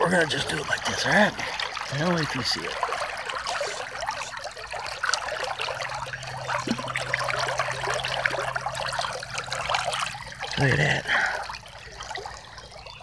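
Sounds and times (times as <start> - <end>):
creek water trickling over gravel: 0.0 - 13.0.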